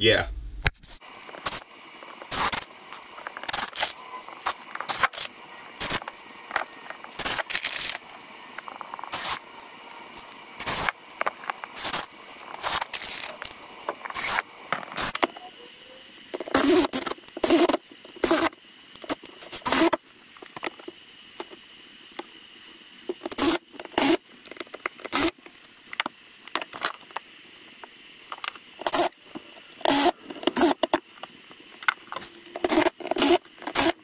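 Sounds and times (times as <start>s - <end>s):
cordless drill driving screws: 19.5s - 20.0s, 32.6s - 34.0s.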